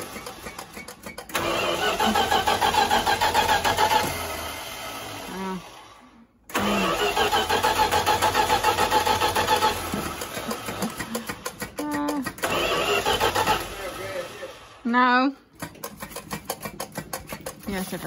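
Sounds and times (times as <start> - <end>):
engine cranking without starting: 0.0 - 14.8, 15.5 - 18.0.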